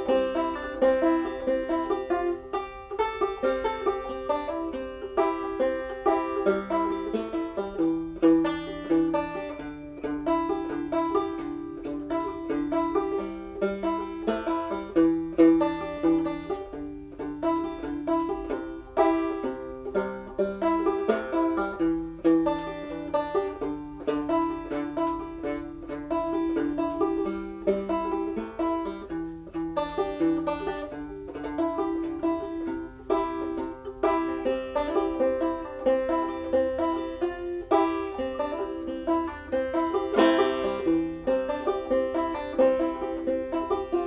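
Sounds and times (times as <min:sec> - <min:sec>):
solo banjo playing: 0:00.0 - 0:44.0.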